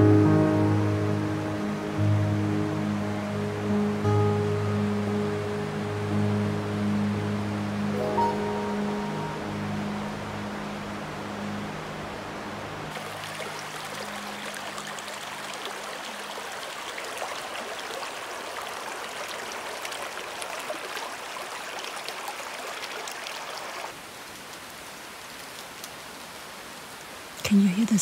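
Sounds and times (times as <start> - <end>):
creek babbling over stones: 10.1 - 28.0.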